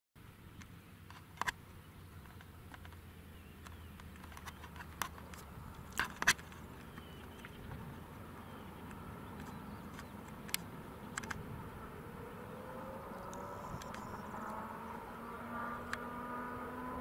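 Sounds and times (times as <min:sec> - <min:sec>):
sharp clicks or chirps: 0:00.6 - 0:07.8, 0:08.8 - 0:11.4, 0:13.1 - 0:14.6.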